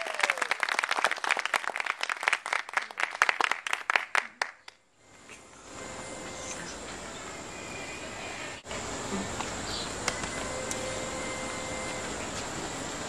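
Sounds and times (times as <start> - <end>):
small audience clapping: 0.0 - 4.9.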